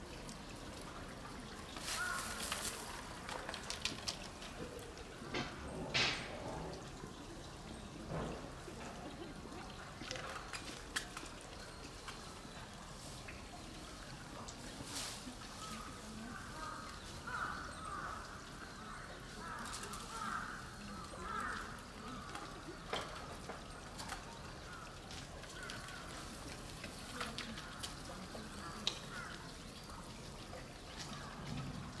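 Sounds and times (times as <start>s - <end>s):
crows cawing: 1.9s - 2.6s, 15.6s - 22.6s, 28.6s - 29.5s.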